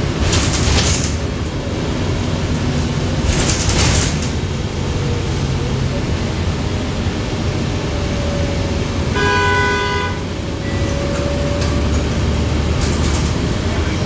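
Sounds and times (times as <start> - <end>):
bus running noise: 0.0 - 14.0
vehicle horn blast: 9.1 - 11.5.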